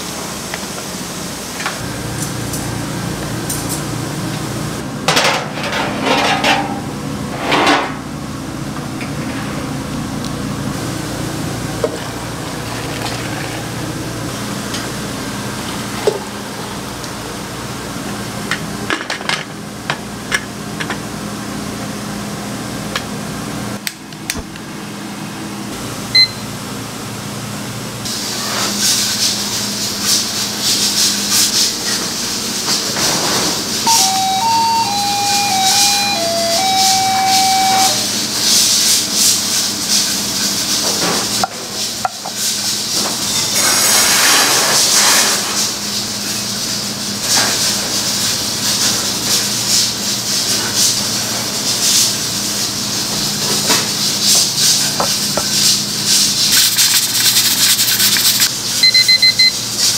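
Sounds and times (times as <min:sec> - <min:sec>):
steady machine hum: 0:00.0 - 0:18.4, 0:33.6 - 0:39.0
dishes and utensils clattering: 0:05.1 - 0:06.9.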